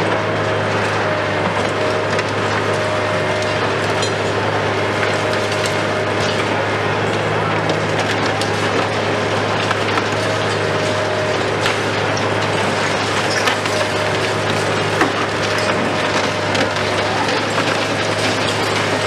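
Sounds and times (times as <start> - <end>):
concrete crackling and crumbling: 0.2 - 19.0
falling rubble: 7.7 - 19.0
sharp concrete cracks: 7.7 - 19.0.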